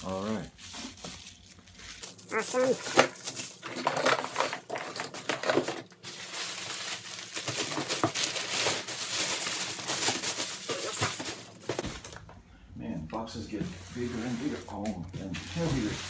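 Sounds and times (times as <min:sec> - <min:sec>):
plastic packaging crinkling: 0:00.1 - 0:12.2.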